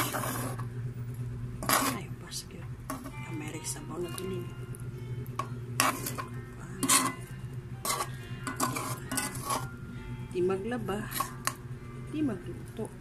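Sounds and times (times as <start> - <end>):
metal spoon scraping a pan: 0.0 - 0.7, 1.6 - 2.1, 2.9 - 3.2, 5.4 - 9.8, 10.9 - 11.6
steady low hum: 0.0 - 13.0.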